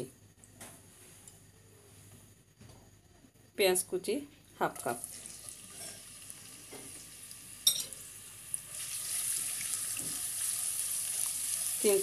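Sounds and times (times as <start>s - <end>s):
onions sizzling in oil: 4.9s - 12.0s.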